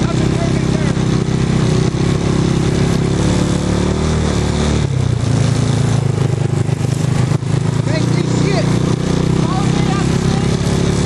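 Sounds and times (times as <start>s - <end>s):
utility vehicle engine running: 0.0s - 11.0s.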